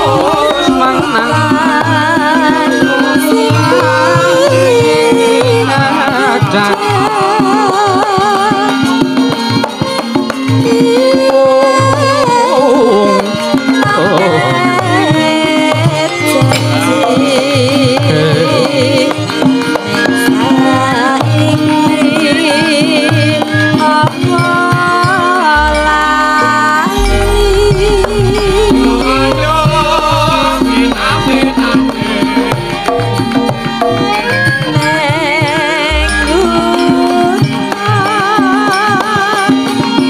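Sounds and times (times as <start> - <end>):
gamelan pitched tones: 0.0 - 5.8, 23.7 - 39.0
woman singing with vibrato: 0.0 - 9.1, 10.6 - 33.4, 34.1 - 40.0
hand drum strokes: 0.0 - 40.0.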